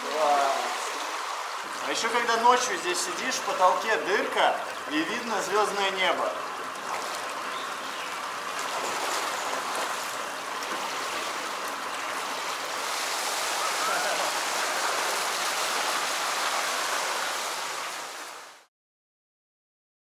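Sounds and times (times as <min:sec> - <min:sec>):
water jets rushing and splashing: 0:00.0 - 0:18.7.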